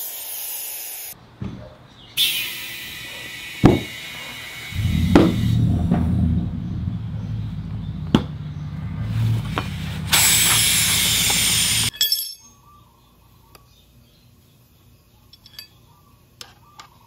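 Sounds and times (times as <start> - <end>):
air hissing into tire valve: 0.0 - 1.2, 2.2 - 5.7, 9.0 - 11.9
air compressor motor humming: 2.2 - 11.9.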